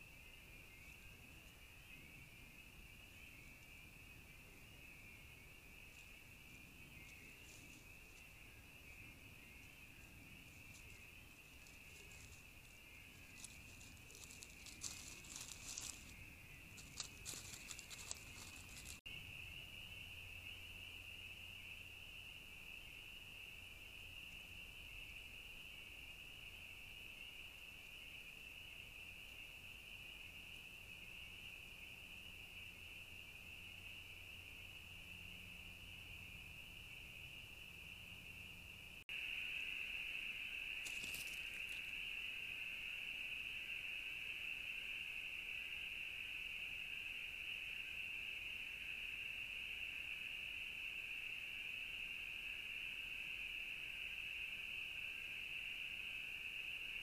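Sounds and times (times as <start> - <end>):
high-pitched insect chorus: 0.0 - 57.0
raccoon rustling through dry leaves: 11.6 - 19.0, 40.8 - 41.8.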